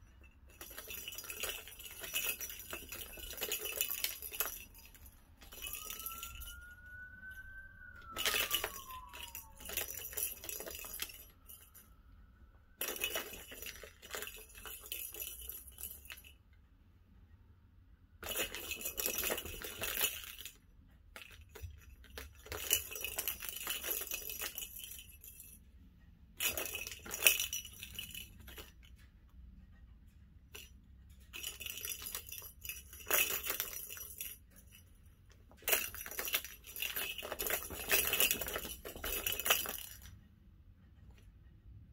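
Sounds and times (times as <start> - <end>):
plastic balls rattling in toy track: 0.1 - 12.0, 12.8 - 16.4, 18.2 - 25.6, 26.4 - 29.1, 30.5 - 40.2.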